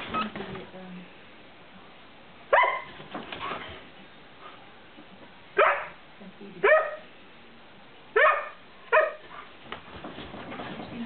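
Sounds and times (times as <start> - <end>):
dog barking: 2.5 - 3.0, 5.6 - 6.0, 6.6 - 7.1, 8.2 - 9.2.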